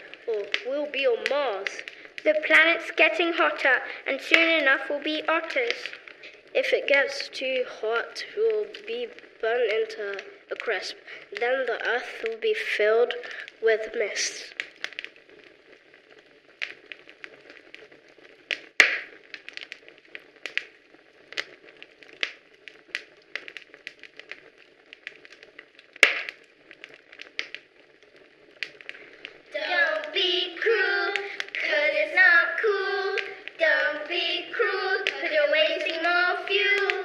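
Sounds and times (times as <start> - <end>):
scattered clicks and taps: 18.5 - 19.7, 26.0 - 27.6
children singing: 29.5 - 37.0.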